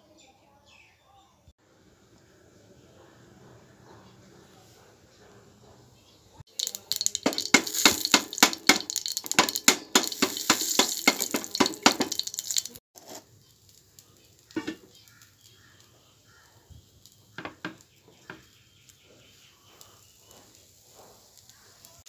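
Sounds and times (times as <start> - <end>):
steady sizzle: 6.4 - 22.0
ladle stirring and scraping pot: 6.5 - 13.3.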